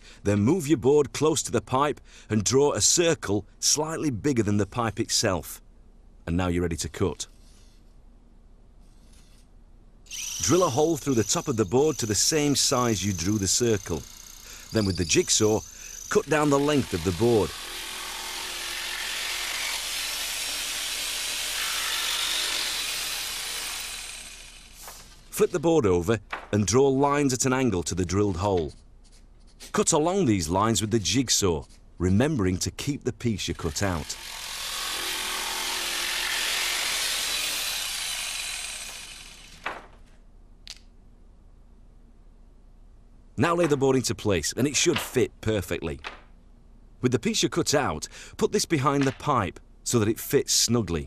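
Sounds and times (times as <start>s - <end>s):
jigsaw cutting floorboard: 10.1s - 25.2s, 33.6s - 39.7s.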